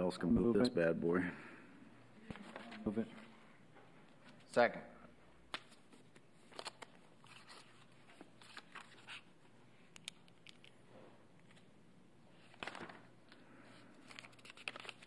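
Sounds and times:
paper rustling: 2.3s - 3.4s, 5.5s - 9.3s, 12.4s - 15.0s.

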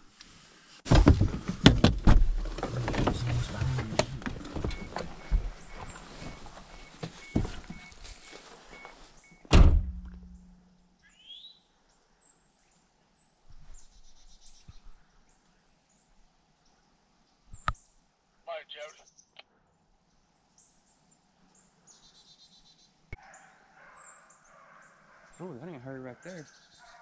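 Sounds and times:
door-ajar chime beeping: 3.6s - 7.9s
car door slamming: 9.5s - 10.4s.

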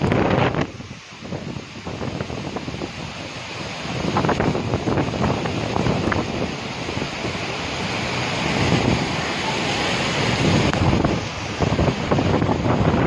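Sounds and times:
floodwater rushing: 0.0s - 13.0s
heavy rain: 0.0s - 13.0s.

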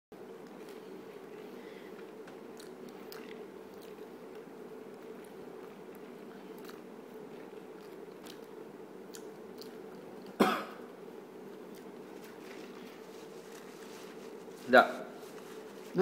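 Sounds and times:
woman chewing: 0.4s - 10.4s
woman coughing: 10.4s - 10.8s.

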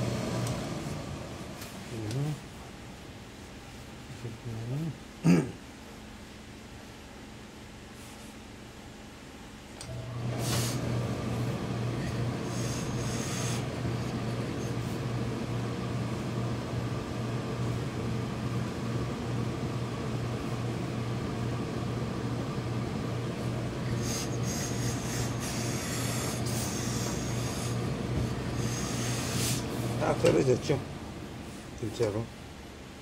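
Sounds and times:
steam press humming and rushing: 0.0s - 1.8s, 9.8s - 31.8s
steam iron hissing: 10.2s - 11.0s, 12.4s - 14.1s, 23.8s - 30.2s.

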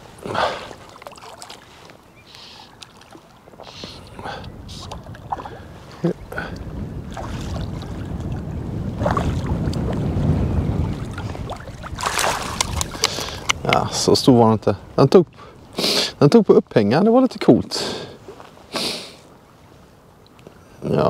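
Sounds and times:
water splashing and sloshing: 0.0s - 14.6s, 17.9s - 20.6s
wind rumble on microphone: 3.4s - 17.0s.

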